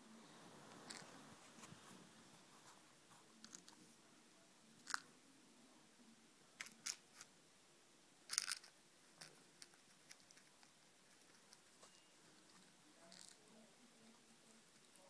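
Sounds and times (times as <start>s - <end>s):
faint scratchy rustles: 0.0s - 4.1s, 8.6s - 15.0s.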